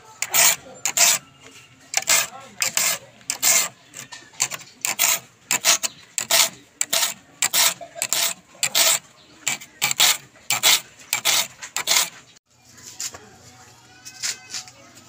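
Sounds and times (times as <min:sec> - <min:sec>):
file rasping on saw teeth: 0:00.2 - 0:01.3, 0:01.9 - 0:12.3.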